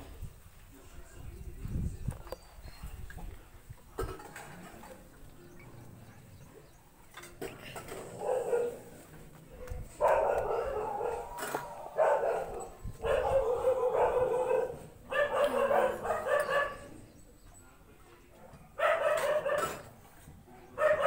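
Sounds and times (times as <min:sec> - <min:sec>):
dog barking and howling: 0:08.1 - 0:08.9, 0:10.0 - 0:17.0, 0:18.8 - 0:19.8, 0:20.8 - 0:21.0.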